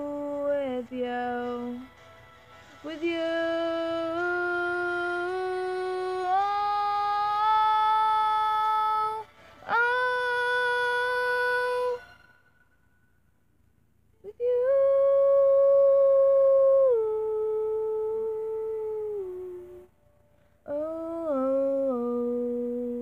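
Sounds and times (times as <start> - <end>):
woman singing held notes: 2.8 - 12.0, 20.6 - 23.0.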